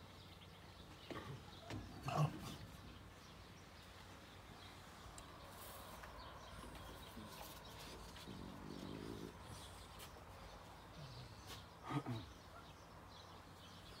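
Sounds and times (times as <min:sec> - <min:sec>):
dog grunting: 0:01.1 - 0:02.8, 0:08.2 - 0:09.8, 0:10.9 - 0:12.5.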